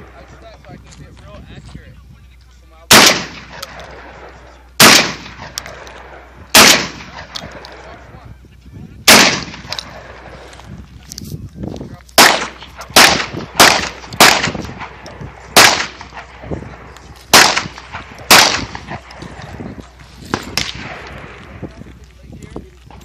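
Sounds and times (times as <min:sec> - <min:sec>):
loud gunshots with echo: 0:02.9 - 0:07.8, 0:09.0 - 0:10.4, 0:12.2 - 0:19.4, 0:20.3 - 0:21.6.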